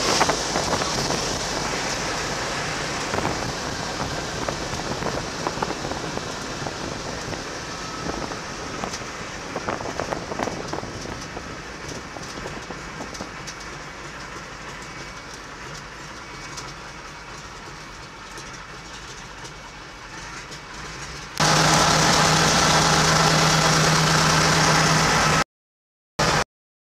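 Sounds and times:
airplane rumbling and rattling: 0.0 - 25.4.

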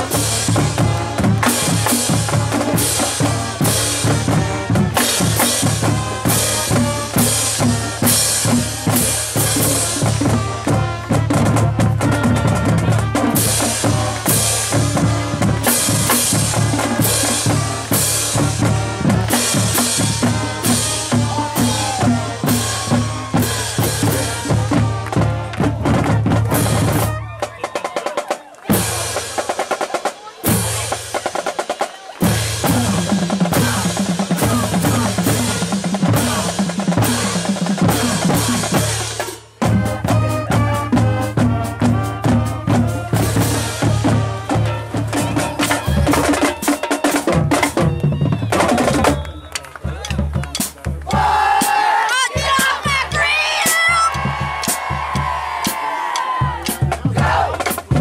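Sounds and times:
drumline playing cadence: 0.0 - 58.0.

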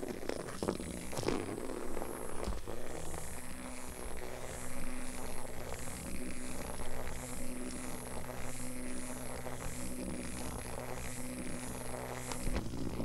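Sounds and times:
toy vibration motor buzzing: 0.0 - 13.0.

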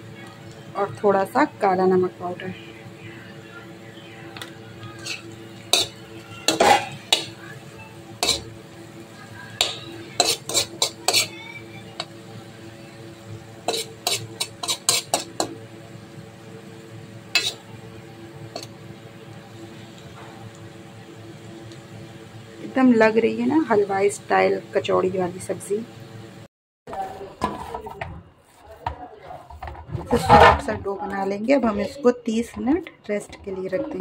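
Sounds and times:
metal spoon scraping iron pan: 4.9 - 7.4, 8.2 - 8.5, 9.6 - 11.4, 13.6 - 15.5, 17.3 - 17.6.

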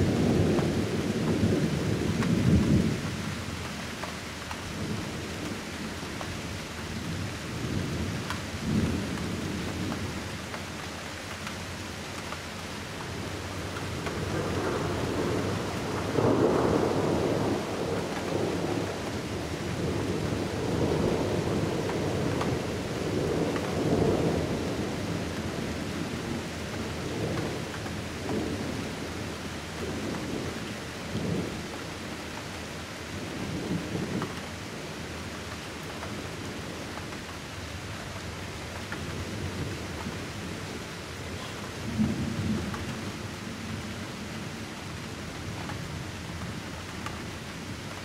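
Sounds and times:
thunder rumbling: 0.0 - 3.5, 13.0 - 31.8, 38.7 - 48.0
rain hiss: 0.0 - 48.0.

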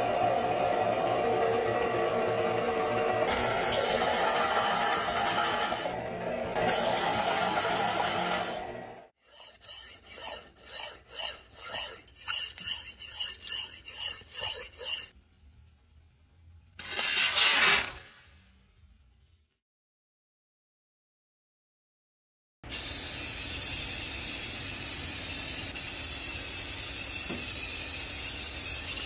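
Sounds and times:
belt sander grinding blade: 0.2 - 15.1
blade scraping on ceramic: 9.2 - 15.1.

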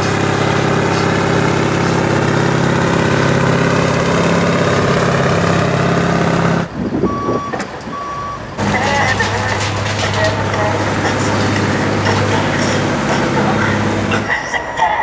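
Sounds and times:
diesel truck engine running: 0.0 - 15.0
reversing alarm beeping: 7.0 - 11.0.

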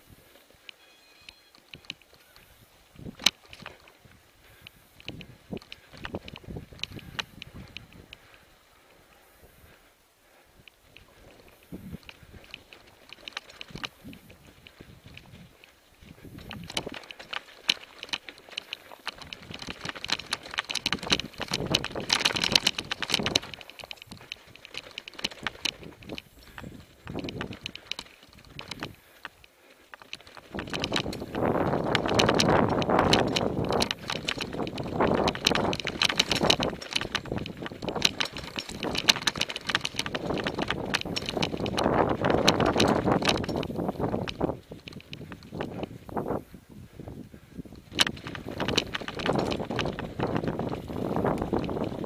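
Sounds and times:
mountain bike rattling over rocks: 1.5 - 8.6, 9.6 - 52.0.

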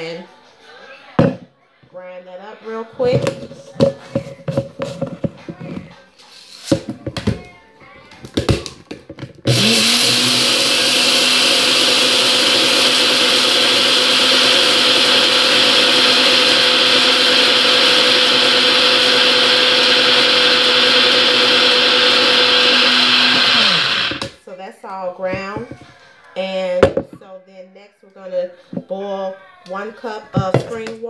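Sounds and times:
blender grinding grain: 9.4 - 24.4.

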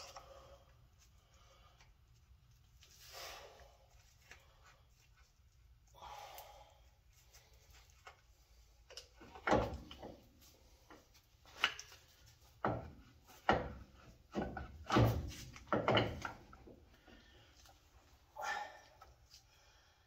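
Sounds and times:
metal clunks and knocks: 9.2 - 10.2, 12.6 - 16.6.

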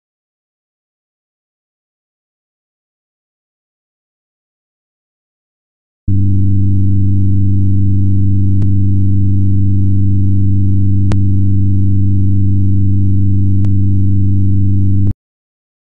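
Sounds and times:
low synthetic hum: 6.1 - 15.2.

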